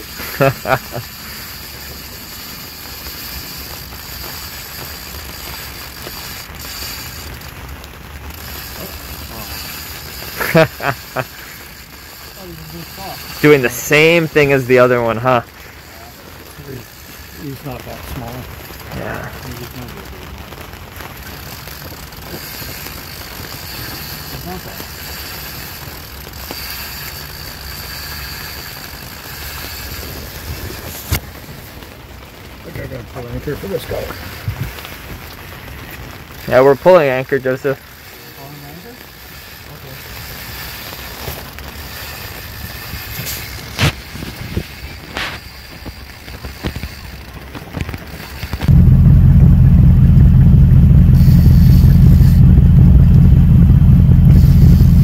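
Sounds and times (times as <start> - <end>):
fishing reel ratcheting: 0.0 - 18.8, 21.1 - 31.2, 33.9 - 48.7, 51.1 - 52.4, 54.3 - 55.0
low rumble: 48.6 - 55.0.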